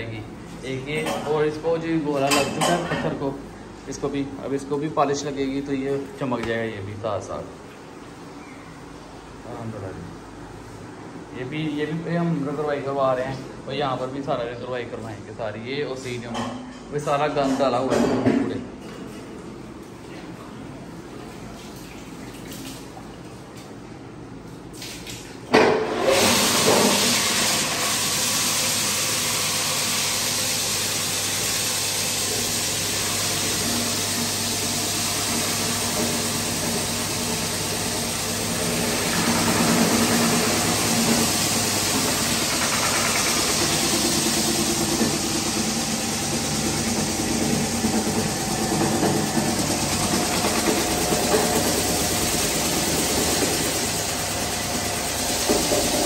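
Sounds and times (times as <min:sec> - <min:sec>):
floor grinding machine: 0:25.8 - 0:56.0.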